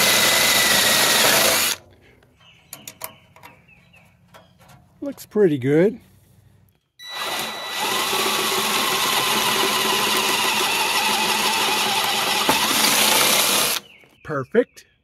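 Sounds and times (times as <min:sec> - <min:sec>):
power drill boring metal: 0:00.0 - 0:01.8, 0:07.0 - 0:13.8.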